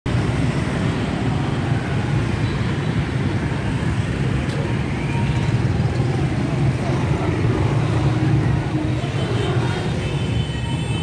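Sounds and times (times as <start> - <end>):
motorbike engines passing: 0.1 - 11.0.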